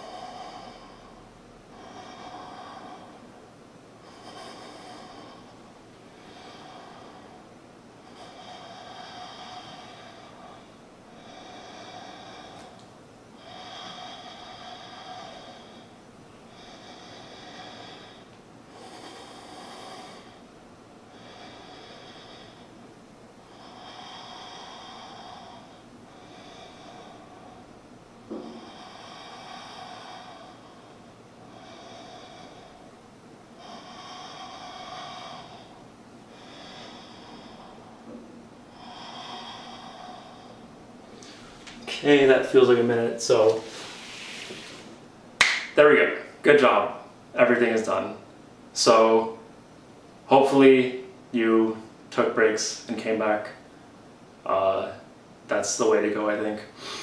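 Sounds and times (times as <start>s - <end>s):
man breathing hard: 0.0s - 12.8s, 13.4s - 20.5s, 21.1s - 42.4s, 56.7s - 57.0s.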